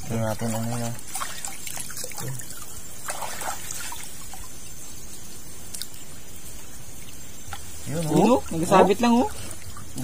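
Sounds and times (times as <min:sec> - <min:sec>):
water trickling from net: 0:00.0 - 0:10.0
loud splashes: 0:01.1 - 0:04.1.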